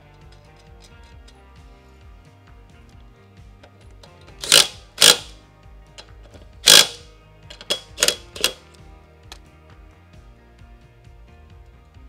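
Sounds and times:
background music: 0:00.0 - 0:12.0
socket wrench clicking: 0:03.6 - 0:05.4, 0:06.0 - 0:08.7.

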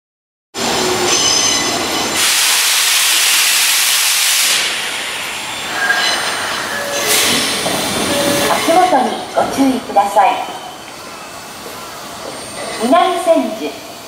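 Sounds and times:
train wheels squealing: 0:01.0 - 0:02.3, 0:05.1 - 0:09.7, 0:10.4 - 0:13.6
loud steady hiss: 0:02.2 - 0:05.8.

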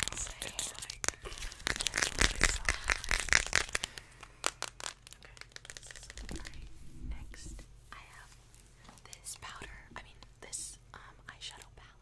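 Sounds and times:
packet crinkling: 0:00.0 - 0:06.7.

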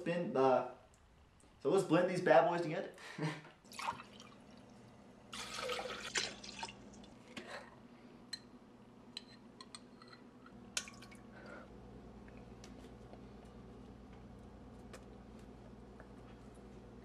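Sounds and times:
liquid splashing into blender jar: 0:03.7 - 0:04.4, 0:05.3 - 0:06.8.

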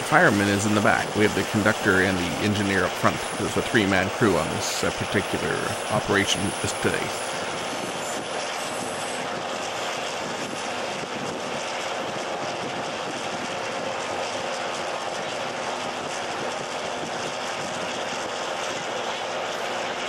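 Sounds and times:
locomotive diesel engine drone: 0:00.0 - 0:20.0.

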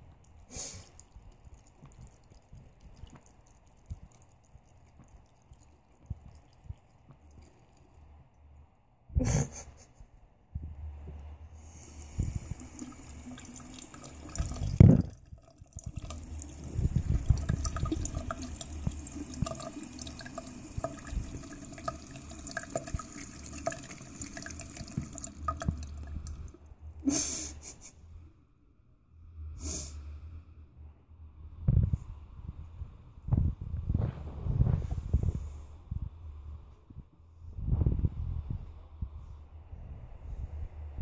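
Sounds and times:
tap water running and splashing: 0:00.1 - 0:08.1, 0:11.6 - 0:26.7.

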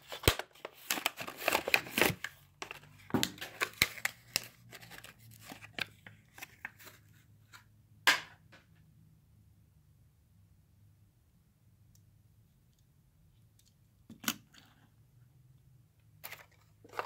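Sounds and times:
plastic crinkling and cracking: 0:00.0 - 0:06.7, 0:16.2 - 0:17.0.

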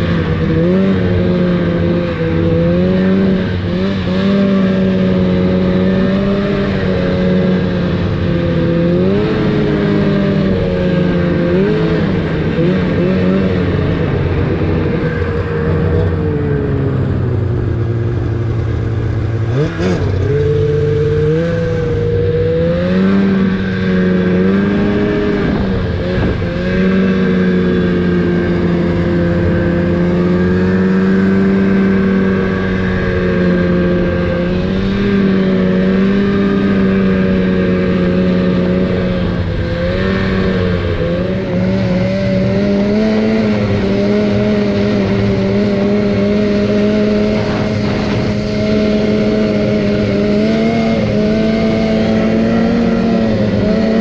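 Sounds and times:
snowmobile engine revving: 0:00.0 - 0:54.0.

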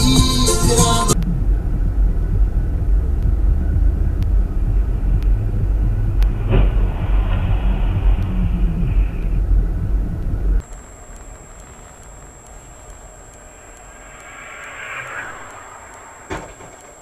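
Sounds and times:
music: 0:00.0 - 0:10.6
car engine rumble and road noise: 0:00.0 - 0:17.0
high-pitched steady tone: 0:00.0 - 0:17.0
faint ticks: 0:07.2 - 0:17.0.

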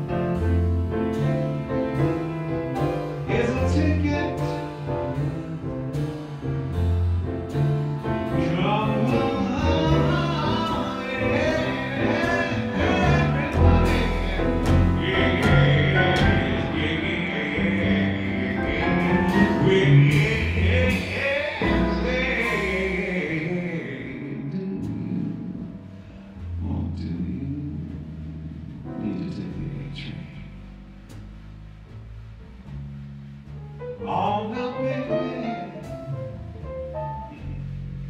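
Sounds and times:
drums with ride cymbal: 0:00.0 - 0:23.2
grand piano: 0:00.0 - 0:38.0
upright bass: 0:00.0 - 0:38.0.

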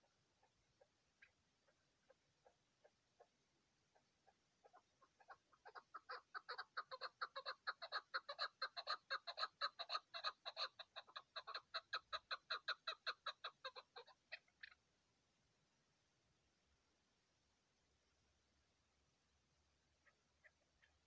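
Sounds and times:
partridge clucking calls: 0:00.0 - 0:03.3, 0:03.9 - 0:14.8, 0:20.0 - 0:21.0.

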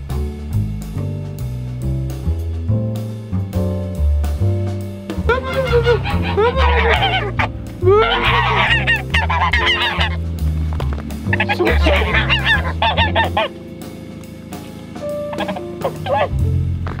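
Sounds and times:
background music with bass line: 0:00.0 - 0:17.0
geese honking: 0:05.1 - 0:10.5, 0:11.2 - 0:16.4.

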